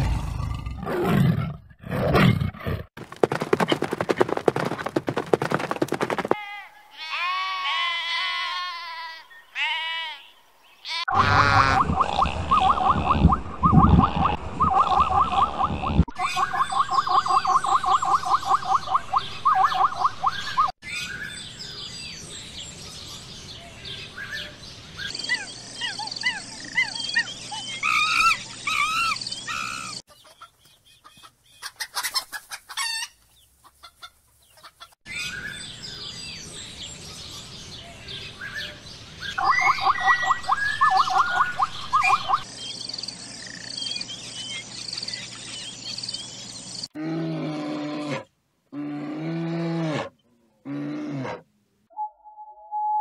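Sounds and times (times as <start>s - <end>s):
birds chirping and calling: 9.3s - 46.9s
chicken-like calls: 10.9s - 20.7s.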